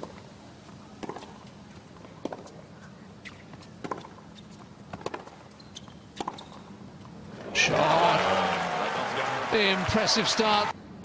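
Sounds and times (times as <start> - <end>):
low crowd hum: 7.1 - 10.7.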